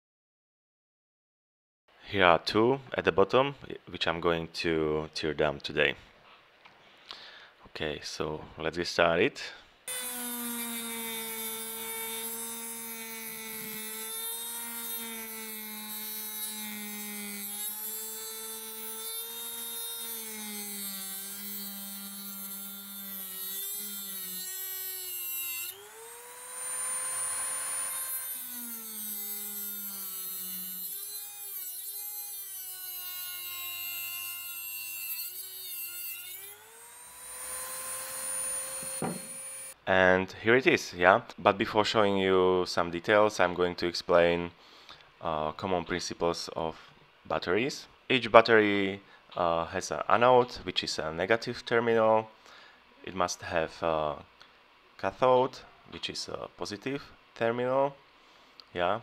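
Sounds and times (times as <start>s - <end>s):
rotary tool cutting metal: 9.9s - 39.8s.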